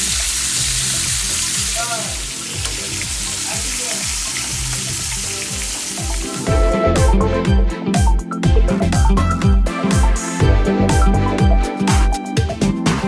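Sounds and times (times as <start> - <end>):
fish sizzling in oil: 0.0 - 6.5
background music with bass beat: 0.6 - 13.0.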